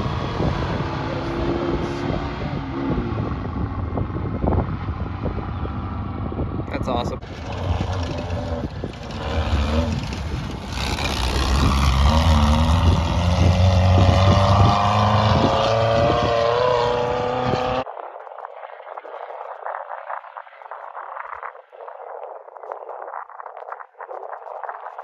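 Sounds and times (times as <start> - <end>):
buggy engine accelerating: 0.0 - 17.8
faint rough noise: 6.7 - 18.0.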